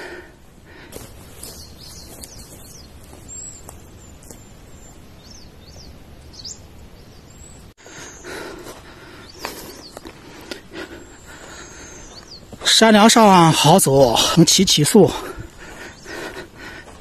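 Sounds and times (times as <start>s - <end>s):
small birds whistling: 1.1s - 12.8s, 15.7s - 16.5s.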